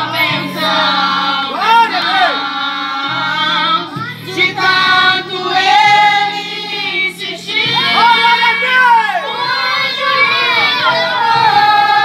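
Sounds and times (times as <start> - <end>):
girl singing into a microphone: 0.0 - 1.0, 3.0 - 8.5, 9.3 - 12.0
instrumental accompaniment with bass: 0.0 - 12.0.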